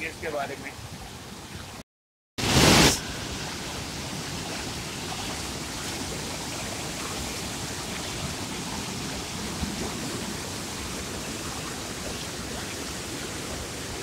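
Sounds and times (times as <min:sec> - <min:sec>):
loud burst of noise: 0:02.4 - 0:04.2
water rushing over boulders: 0:02.4 - 0:14.0.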